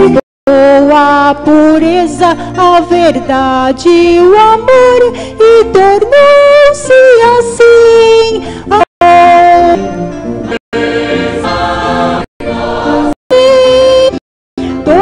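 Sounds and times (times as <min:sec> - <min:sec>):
choir singing a hymn: 0:10.8 - 0:13.2.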